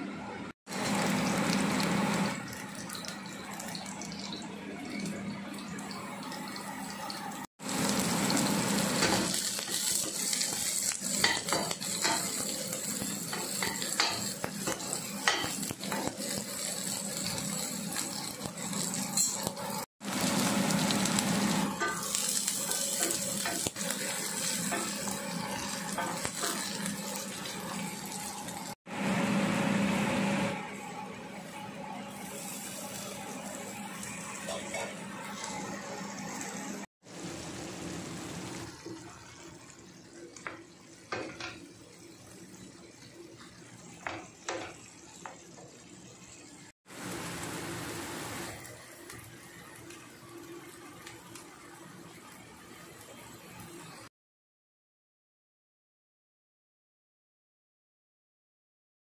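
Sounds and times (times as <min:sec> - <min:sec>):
vegetables sizzling in oil: 0:00.7 - 0:04.5, 0:05.7 - 0:54.1
spatula scraping a pan: 0:13.3 - 0:19.5.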